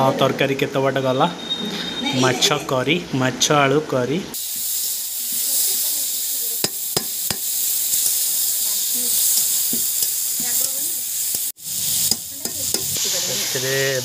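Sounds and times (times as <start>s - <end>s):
curry sizzling in oil: 4.4s - 14.0s
spatula clacking on pan: 6.6s - 13.0s
spatula stirring and scraping: 6.6s - 13.5s.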